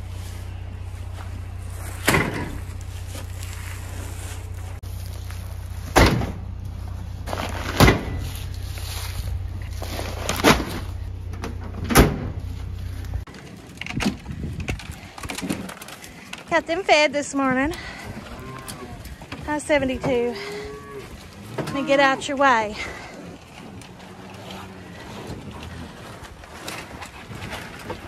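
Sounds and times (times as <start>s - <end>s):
low rumble: 0.0s - 16.4s
sacks thudding into truck bed: 7.3s - 8.4s, 9.0s - 11.0s.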